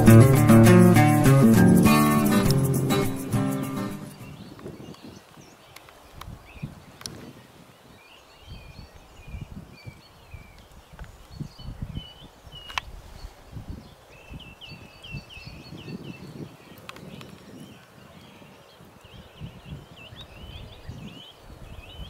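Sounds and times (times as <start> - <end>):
small birds chirping: 0.0 - 22.0
sharp click: 2.2 - 3.8.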